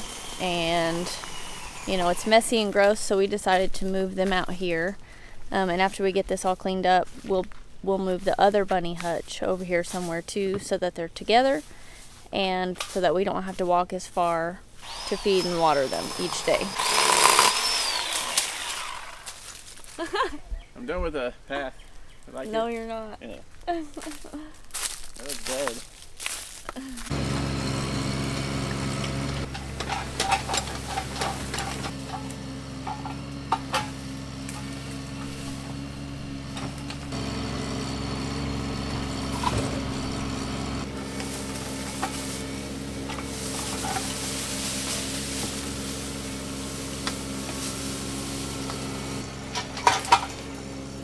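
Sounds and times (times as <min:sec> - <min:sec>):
diesel engine running: 0:00.0 - 0:07.0, 0:26.9 - 0:51.0.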